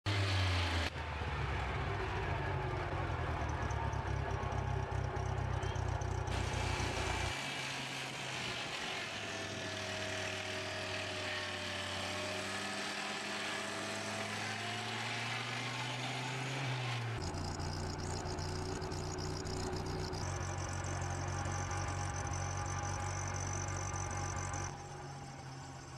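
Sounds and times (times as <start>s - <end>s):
circular saw and motor hum: 5.2s - 25.9s.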